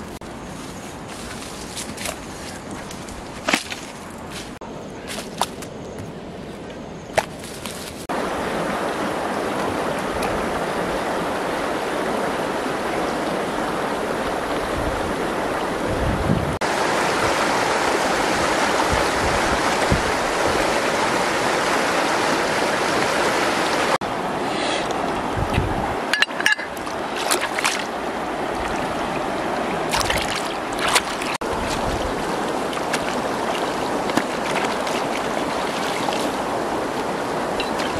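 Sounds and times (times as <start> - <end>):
river flowing: 7.7 - 16.0, 16.6 - 37.9.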